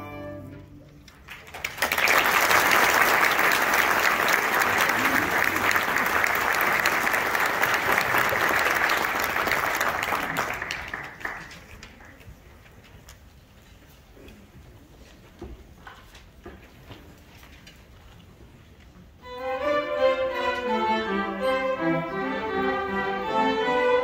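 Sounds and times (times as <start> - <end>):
audience applauding: 1.1 - 12.2.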